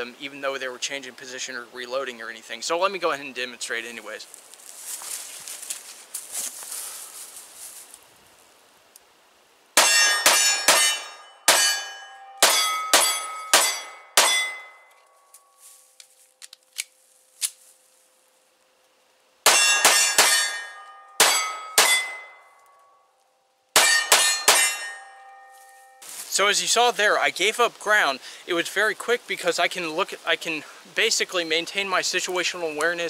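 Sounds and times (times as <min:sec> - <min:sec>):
steel targets ringing: 0:09.8 - 0:15.7, 0:19.5 - 0:23.1, 0:23.8 - 0:26.0.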